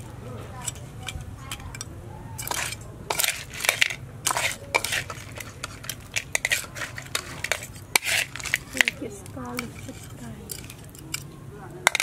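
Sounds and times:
crab shells clattering on a plate: 0:00.6 - 0:12.0
metal spatula scraping a wok: 0:02.4 - 0:11.2.

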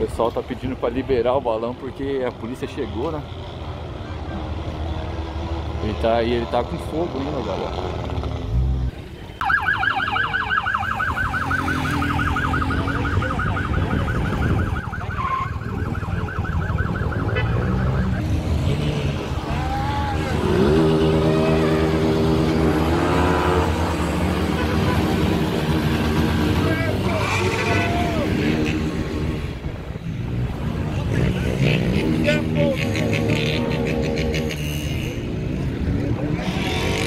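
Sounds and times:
low rumble of traffic: 0:00.0 - 0:37.0
police siren yelp: 0:09.4 - 0:18.4.

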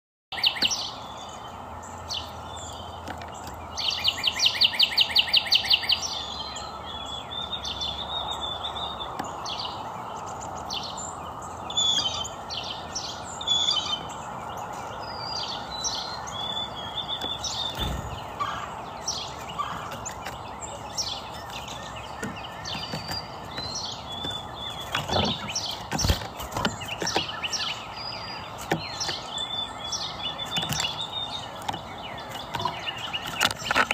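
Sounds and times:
songbirds chirping: 0:00.3 - 0:33.9
low thumps: 0:17.7 - 0:18.4.

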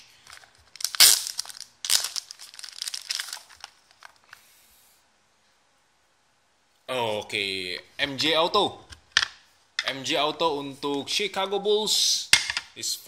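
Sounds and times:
plastic bag crinkling: 0:00.0 - 0:04.4.

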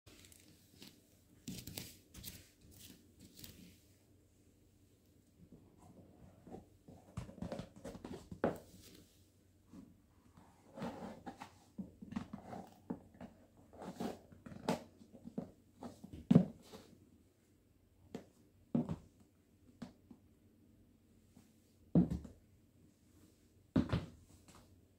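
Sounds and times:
shoes shuffling on floor: 0:00.2 - 0:03.8.

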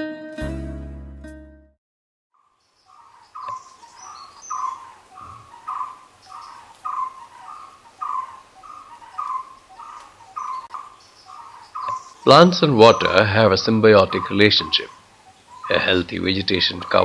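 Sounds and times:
plucked string chord: 0:00.0 - 0:01.8
faint wildlife hiss: 0:02.4 - 0:17.0.

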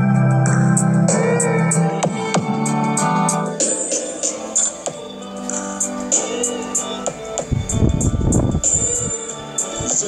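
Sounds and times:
electronic music with synth tones: 0:00.0 - 0:10.0.

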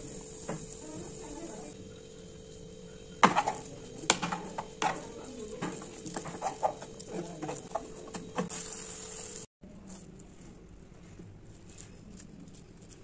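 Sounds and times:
wooden spatula scraping frying pan: 0:03.2 - 0:08.7.

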